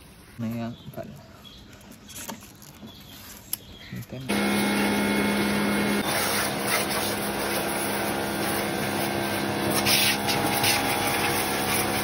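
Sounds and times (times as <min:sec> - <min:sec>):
pressure washer pump humming: 0:04.3 - 0:12.0
water jet hissing: 0:04.3 - 0:12.0.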